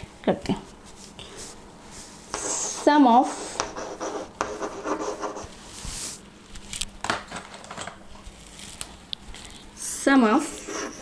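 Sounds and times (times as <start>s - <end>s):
chalk tapping on board: 2.3s - 5.4s
chalk scratching on blackboard: 2.3s - 5.5s, 10.5s - 11.0s.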